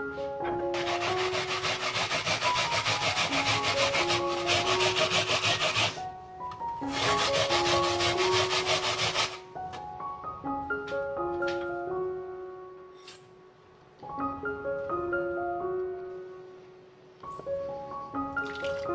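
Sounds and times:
light background music: 0.0 - 18.9
apple grated on plastic grater: 0.8 - 6.0, 6.9 - 9.4.

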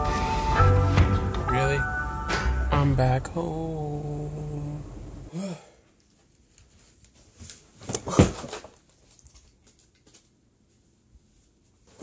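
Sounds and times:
man holding long vowel: 2.7 - 5.6.

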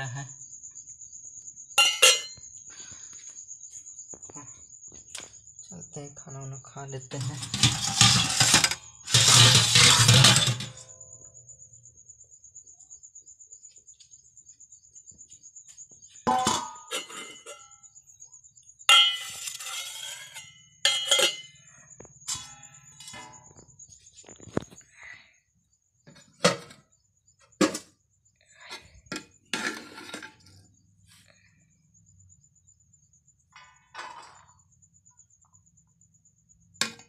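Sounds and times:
steel dishes clinking and knocking: 1.8 - 2.4, 7.2 - 11.0, 16.3 - 17.8, 18.9 - 23.6
metallic scraping clatter: 7.2 - 11.0, 16.3 - 17.7, 18.9 - 24.6, 28.8 - 30.6.

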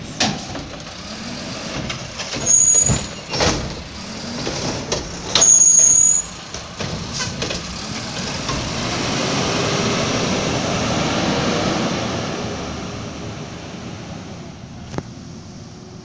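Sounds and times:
garbage truck diesel engine revving: 0.0 - 14.6.

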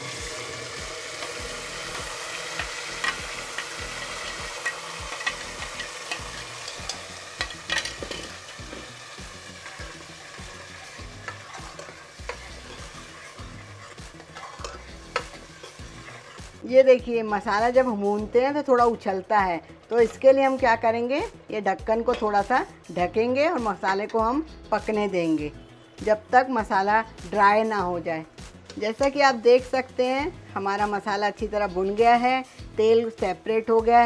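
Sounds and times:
paste sizzling in hot oil: 0.0 - 20.7.

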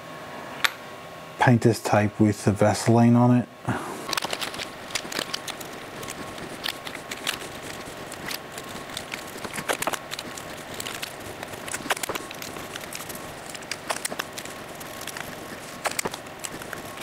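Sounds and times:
tape crackling and rustling: 4.0 - 17.0.

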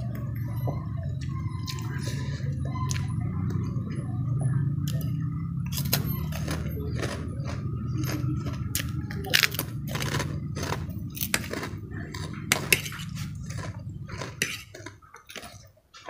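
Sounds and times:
steady low hum: 0.0 - 15.6
cracker crunching: 4.8 - 16.0
fork scraping ceramic plate: 5.7 - 15.7.

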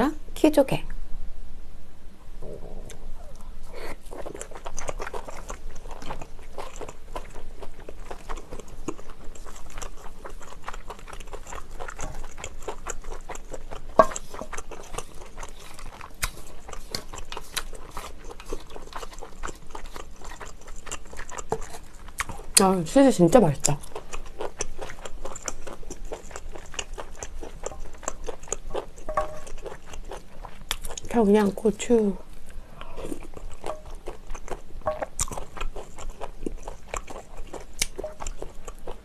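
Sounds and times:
close chewing with wet mouth sounds: 2.9 - 39.0.

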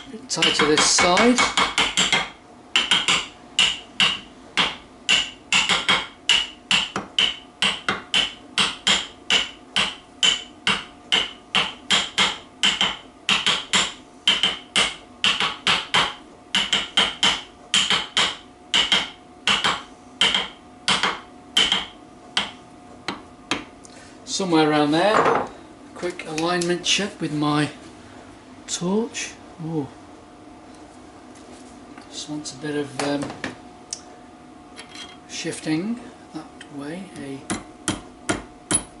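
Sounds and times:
hammer tapping on metal: 0.4 - 23.7.

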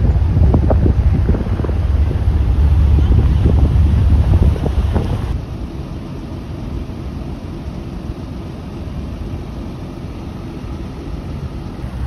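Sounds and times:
wind on microphone: 0.0 - 5.4
vehicle engines rumbling: 0.0 - 12.0.

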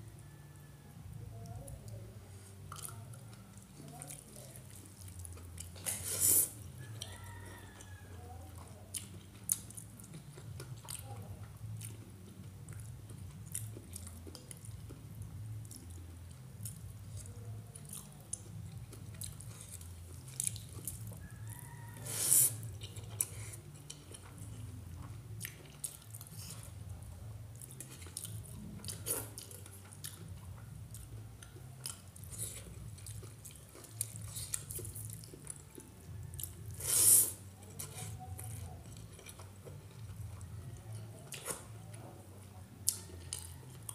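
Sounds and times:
person chewing with mouth clicks: 2.6 - 3.1, 8.6 - 21.3, 22.1 - 26.9, 27.6 - 41.7, 42.8 - 43.9
hissing burst of eating: 5.9 - 6.6, 36.8 - 37.4.

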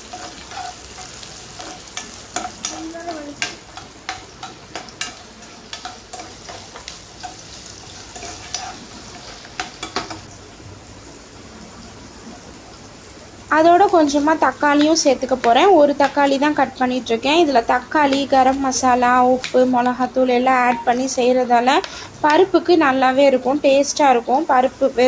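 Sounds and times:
spoon scraping and tapping pan: 0.0 - 7.4, 8.2 - 10.3, 18.0 - 18.4
onions sizzling in oil: 0.0 - 25.0.

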